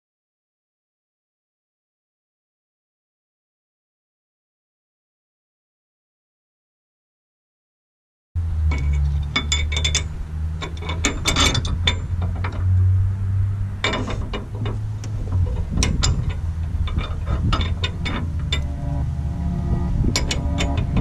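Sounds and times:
steady low rumble: 8.4 - 21.0
metal hardware clicking and clinking: 8.6 - 12.7, 13.8 - 19.1, 20.1 - 21.0.

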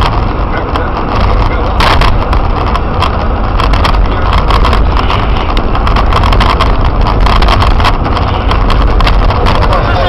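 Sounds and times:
small clicks and knocks: 0.0 - 9.7
car engine and tyre rumble: 0.0 - 10.0.

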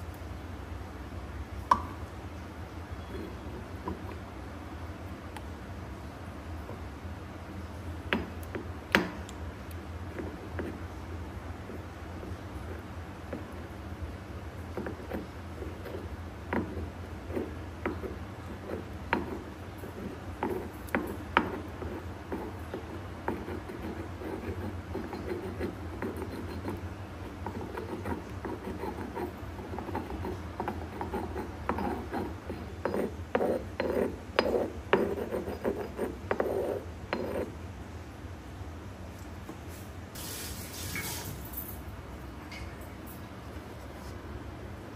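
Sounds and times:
pestle grinding pulp in mortar: 14.6 - 37.6.

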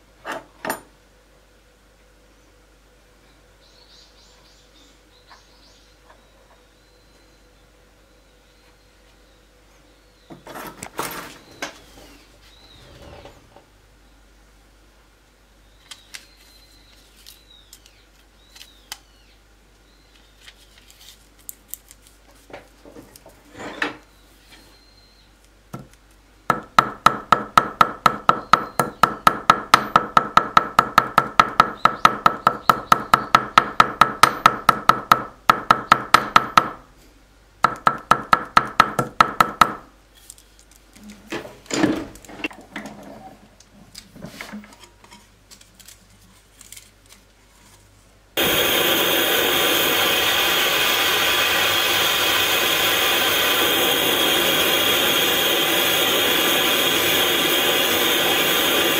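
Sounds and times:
paper and tool handling: 15.9 - 18.8, 20.2 - 23.2, 40.1 - 41.2, 44.7 - 48.0
hammer tapping on steel block: 26.5 - 36.8, 37.6 - 39.8.

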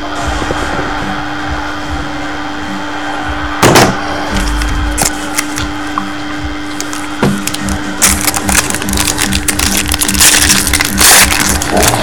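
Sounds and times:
steady hum: 0.0 - 12.0
foil card pack crackling: 4.4 - 5.7, 6.7 - 12.0.

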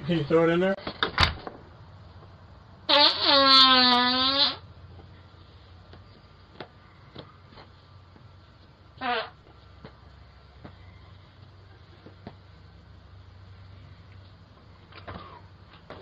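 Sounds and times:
farts: 2.9 - 4.6, 9.0 - 9.4.

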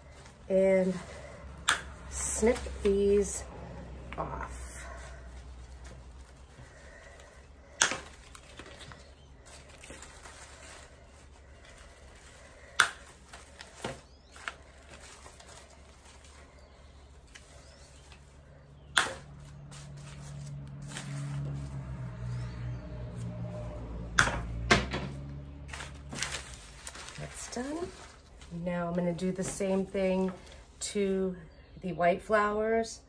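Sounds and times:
wire snips cutting stems: 1.6 - 3.3, 7.7 - 8.9, 12.6 - 14.6, 18.9 - 19.7.

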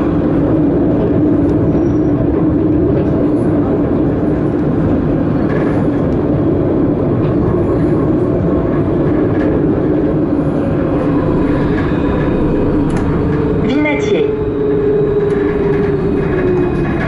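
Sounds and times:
tram rumbling on rails: 0.0 - 17.0.

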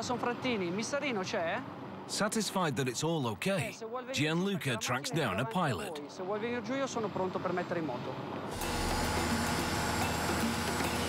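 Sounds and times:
helicopter turbine whine and rotor: 8.5 - 11.0.

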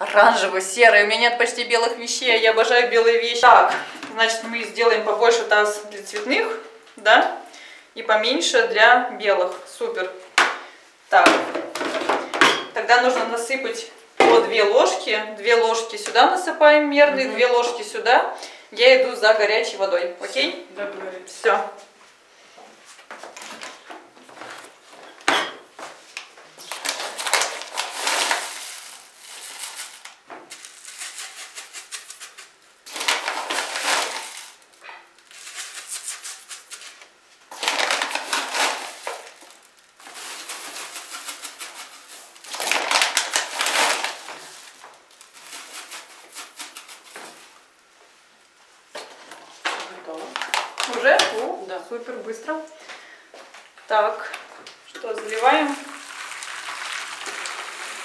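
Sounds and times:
powder pouring into plastic basin: 26.8 - 47.7, 55.2 - 58.0
bag rustling: 32.9 - 34.6, 37.6 - 41.2.

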